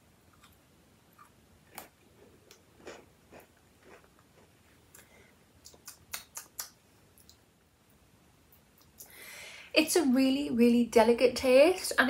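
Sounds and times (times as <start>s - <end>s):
chewing biscuit: 1.2s - 7.4s.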